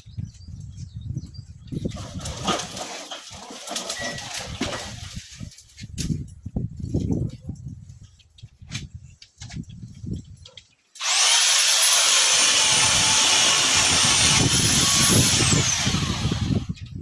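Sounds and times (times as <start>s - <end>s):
electric pole saw whining: 11.0s - 16.8s.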